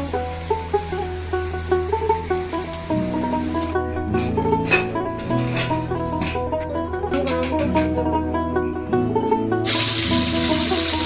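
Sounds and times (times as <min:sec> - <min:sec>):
background music: 0:00.0 - 0:11.0
fish sizzling in hot oil: 0:09.6 - 0:11.0.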